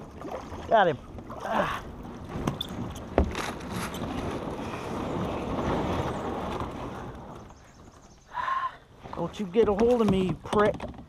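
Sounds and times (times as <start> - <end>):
wind noise on microphone: 1.7 - 8.0.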